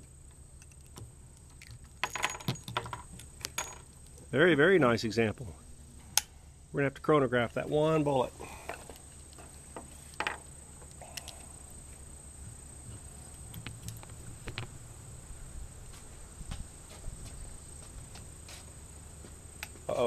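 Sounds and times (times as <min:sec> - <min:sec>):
low steady rumble: 0:00.0 - 0:19.7
thin high steady whine: 0:00.0 - 0:20.0.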